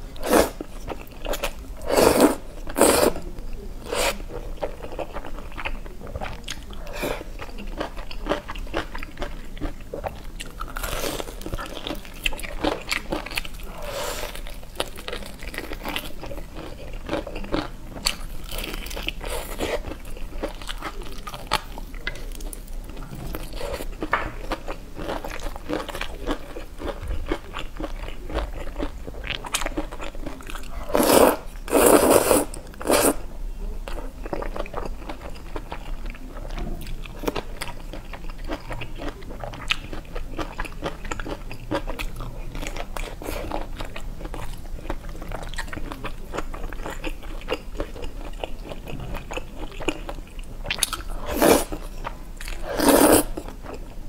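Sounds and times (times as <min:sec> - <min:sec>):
crunchy chewing: 0:00.2 - 0:33.2, 0:33.9 - 0:54.0
noodles slurped: 0:52.6 - 0:53.4.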